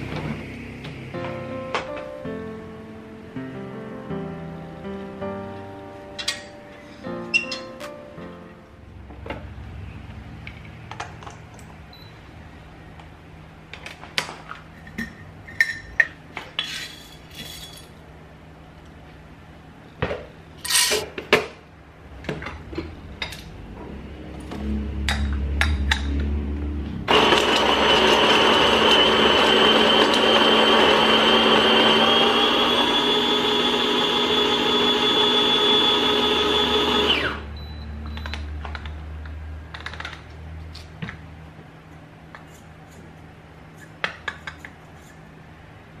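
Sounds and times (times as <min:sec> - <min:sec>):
coffee grinder motor whine: 0:27.1 - 0:37.5.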